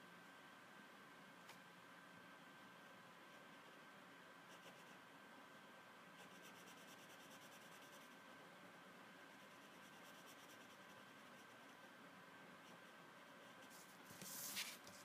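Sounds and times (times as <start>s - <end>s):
faint electronic hum: 0.0s - 15.0s
marker scratching on paper: 6.2s - 8.2s, 12.6s - 15.0s.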